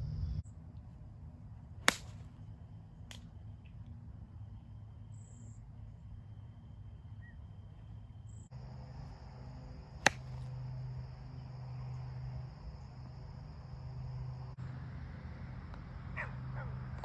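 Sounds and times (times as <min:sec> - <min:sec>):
crickets chirring: 0:00.0 - 0:16.7
golf club striking ball: 0:01.8 - 0:02.3, 0:10.0 - 0:10.6.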